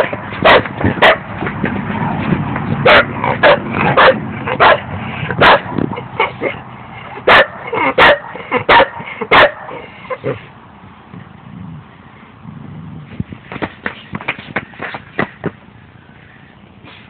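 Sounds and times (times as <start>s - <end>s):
dog barking: 0.0s - 1.2s, 2.8s - 6.6s, 7.3s - 9.8s.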